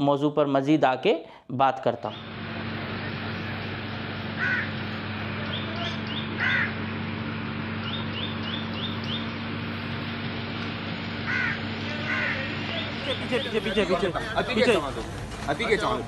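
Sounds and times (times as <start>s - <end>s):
outdoor background noise: 1.8s - 16.0s
small birds chirping: 2.1s - 2.4s, 3.0s - 6.8s, 7.7s - 14.4s
steady low hum: 2.1s - 15.4s
crows cawing: 4.2s - 5.1s, 6.1s - 7.0s, 11.0s - 13.6s.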